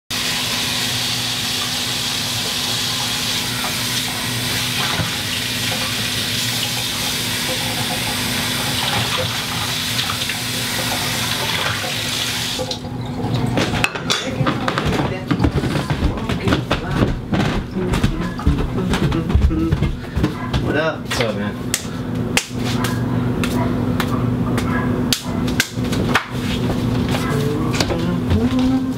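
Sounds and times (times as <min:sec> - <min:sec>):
water running from tap: 0:00.1 - 0:16.0.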